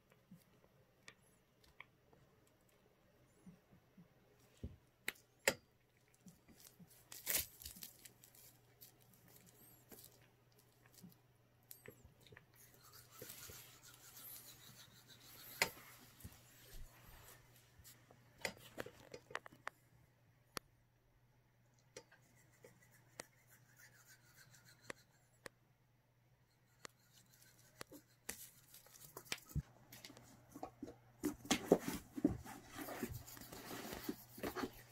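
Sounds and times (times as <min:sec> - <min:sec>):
bubble wrap crinkling and clicking: 0:06.1 - 0:11.2
bubble wrap rustling: 0:06.3 - 0:10.2.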